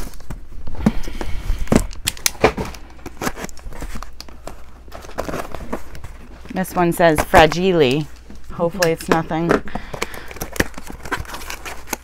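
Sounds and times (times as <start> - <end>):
cardboard boxes rustling: 0.0 - 12.0
cardboard tearing: 1.7 - 7.5, 10.0 - 12.0.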